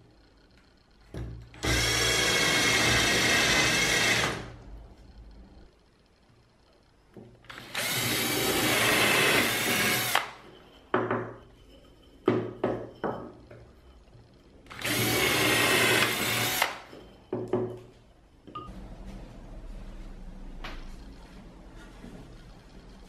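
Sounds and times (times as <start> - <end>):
power drill boring into wood: 1.6 - 4.5, 7.5 - 10.4, 14.7 - 16.9.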